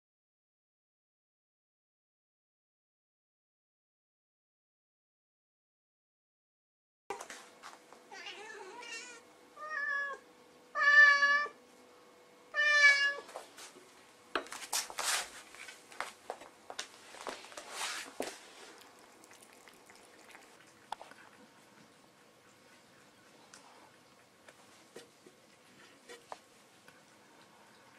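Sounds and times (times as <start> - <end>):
cat meowing: 8.1 - 10.2, 10.8 - 11.6, 12.5 - 13.3
cats eating wet food: 16.8 - 27.9.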